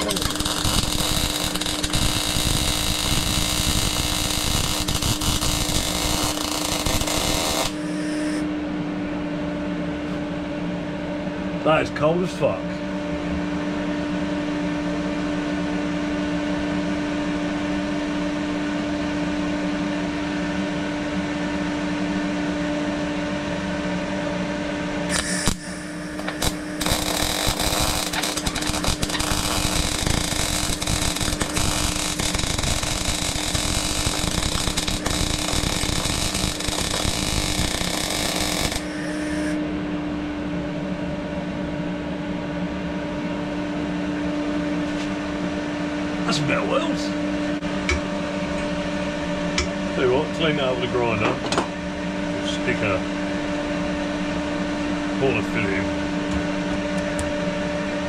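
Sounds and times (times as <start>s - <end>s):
welding arc crackling: 0.0s - 8.4s, 25.1s - 39.6s
steady hum: 0.0s - 16.0s, 17.3s - 58.0s.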